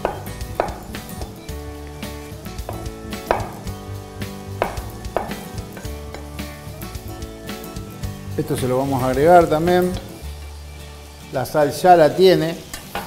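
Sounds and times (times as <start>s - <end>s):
knife knocking on wooden cutting board: 4.6s - 5.9s.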